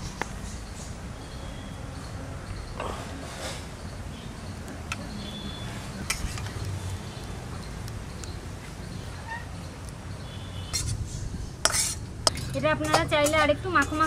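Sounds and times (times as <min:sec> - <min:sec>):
faint bird chirps: 0:00.0 - 0:06.0.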